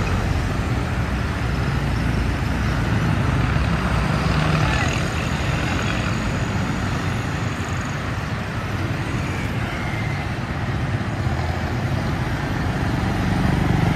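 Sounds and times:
cars passing: 0:00.0 - 0:13.9
motor tricycles passing: 0:00.0 - 0:13.9.

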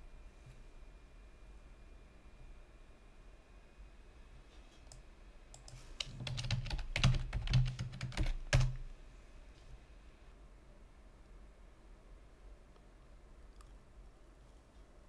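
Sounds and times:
typing on computer keyboard: 0:05.5 - 0:08.8.

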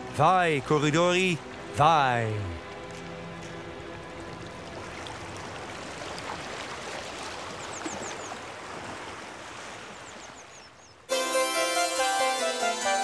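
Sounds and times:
rushing water: 0:00.0 - 0:11.2.

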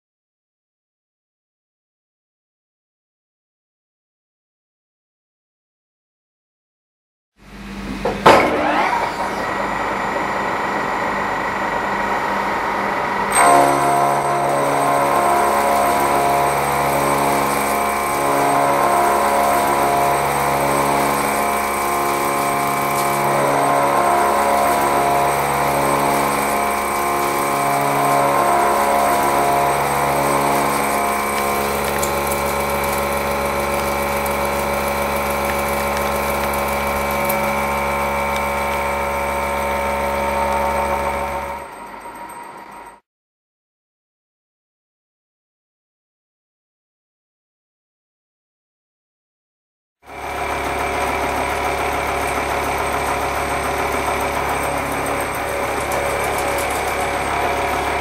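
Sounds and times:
milling cutter whirring: 0:07.6 - 0:43.0, 0:50.1 - 0:58.0.

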